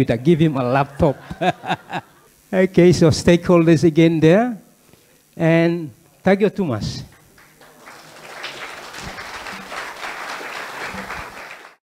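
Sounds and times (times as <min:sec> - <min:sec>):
audience applauding: 0:07.1 - 0:11.8.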